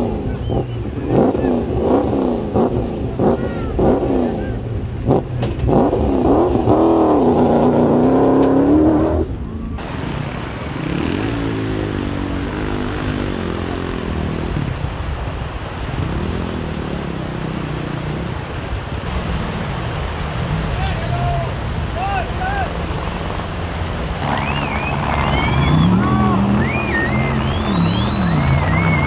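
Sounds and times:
rally engine revving hard: 0:00.0 - 0:15.0, 0:22.8 - 0:29.0
quieter engine revving: 0:00.0 - 0:21.0, 0:21.6 - 0:29.0.

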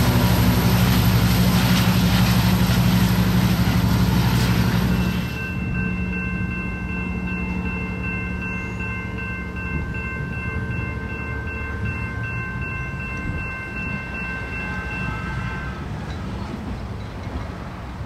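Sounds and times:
diesel locomotive rumbling: 0:00.0 - 0:18.0
steady high-pitched tone: 0:04.4 - 0:15.8.

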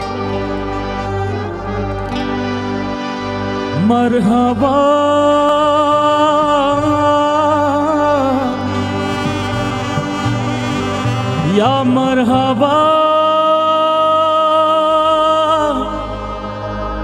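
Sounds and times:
band playing song: 0:00.0 - 0:17.0
harmonium melody: 0:00.0 - 0:17.0
tabla: 0:08.6 - 0:12.8.

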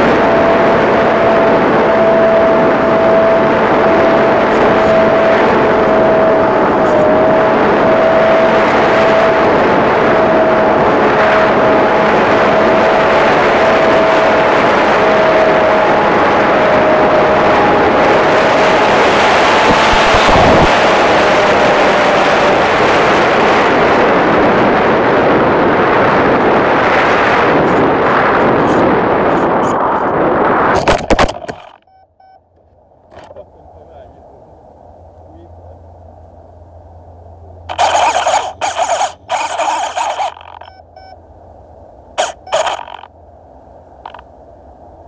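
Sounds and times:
electric motor whining: 0:00.0 - 0:23.3, 0:37.6 - 0:41.1, 0:42.2 - 0:43.1, 0:44.0 - 0:44.2
wind rush on microphone: 0:00.0 - 0:32.3, 0:33.0 - 0:45.0.

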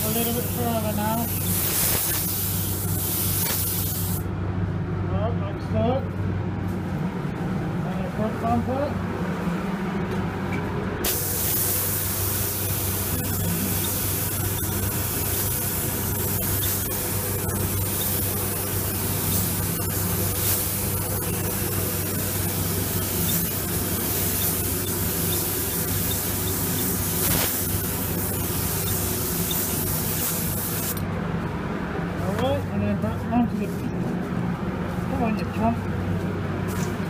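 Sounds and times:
spray gun hissing: 0:00.0 - 0:04.2, 0:11.0 - 0:31.0.

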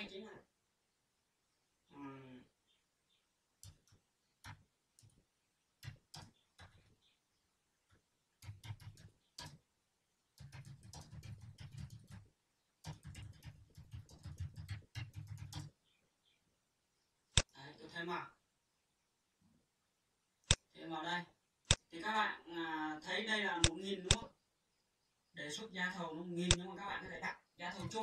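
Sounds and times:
typing on keyboard: 0:03.6 - 0:05.2, 0:05.8 - 0:07.0, 0:08.4 - 0:09.6, 0:10.4 - 0:15.8, 0:27.7 - 0:28.0.

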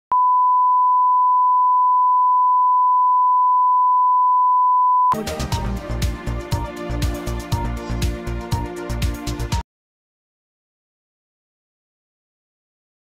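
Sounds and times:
music with a steady beat: 0:05.1 - 0:09.6.

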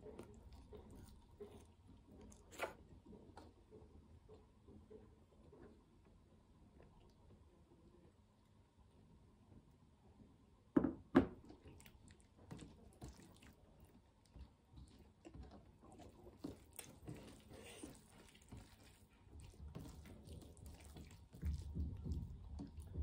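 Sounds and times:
wet squelching of hand mixing food: 0:00.0 - 0:04.6, 0:11.4 - 0:23.0
ceramic bowl knocking on table: 0:10.8 - 0:11.4.

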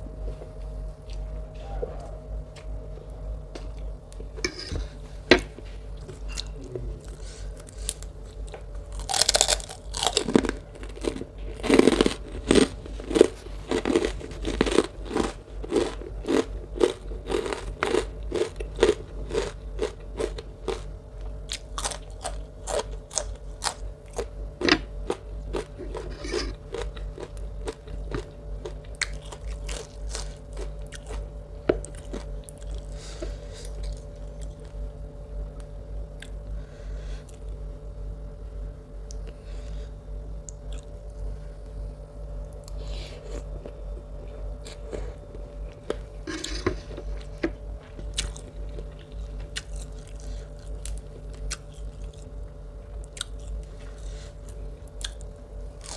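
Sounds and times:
crisp wet chewing and crunching: 0:06.4 - 0:33.0, 0:42.4 - 0:55.9.

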